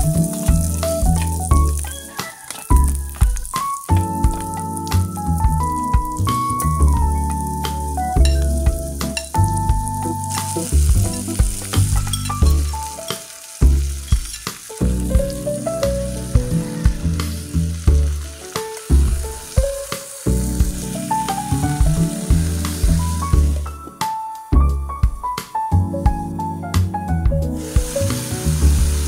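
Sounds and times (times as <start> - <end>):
background music with bass: 0.0 - 2.1, 2.7 - 13.0, 13.6 - 29.0
vegetables sizzling in hot oil: 0.0 - 23.9, 27.5 - 29.0.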